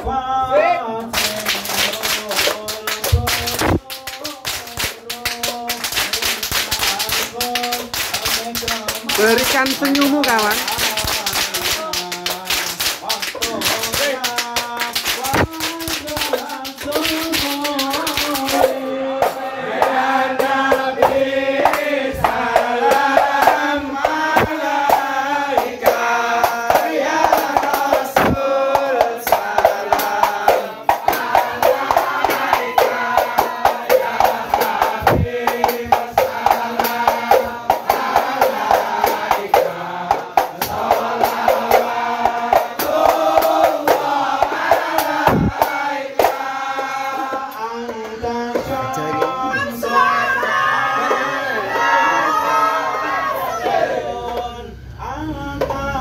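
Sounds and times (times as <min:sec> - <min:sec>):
men singing in unison: 0:00.0 - 0:56.0
hand clapping: 0:01.0 - 0:51.9
frame drums: 0:17.9 - 0:49.4.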